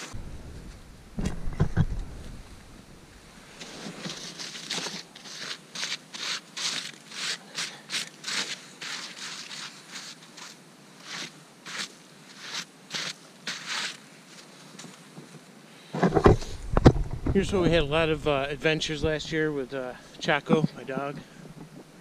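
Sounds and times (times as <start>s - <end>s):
hands scraping snow: 3.4s - 15.2s.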